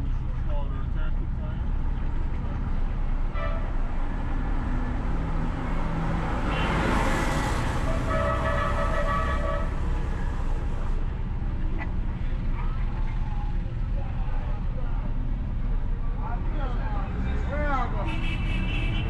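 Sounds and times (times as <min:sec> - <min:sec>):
car engine and road rumble: 0:00.0 - 0:19.0
truck passing close: 0:01.8 - 0:13.0
car horn honking: 0:06.5 - 0:07.1, 0:07.9 - 0:09.8, 0:18.0 - 0:19.0.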